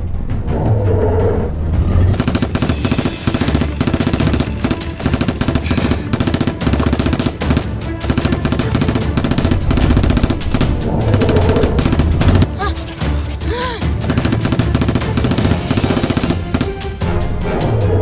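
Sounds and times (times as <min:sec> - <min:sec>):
action music: 0:00.0 - 0:18.0
automatic gunfire: 0:02.1 - 0:12.5, 0:14.0 - 0:17.0.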